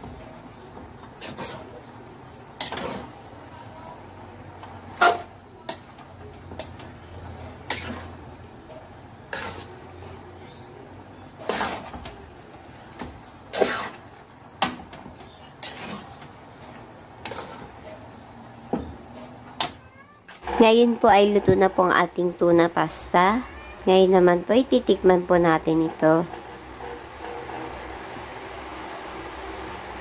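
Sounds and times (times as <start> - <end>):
faint steady background noise: 0.0 - 30.0
metal turner scraping metal pan: 1.1 - 1.9, 2.6 - 3.2, 4.7 - 12.1, 13.5 - 14.1, 15.1 - 18.1, 25.3 - 28.4.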